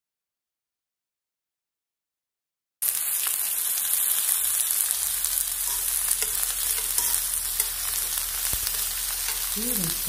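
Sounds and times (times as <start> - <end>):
vegetables sizzling on griddle: 2.8 - 10.0
metal tongs clicking on pan: 5.6 - 9.6.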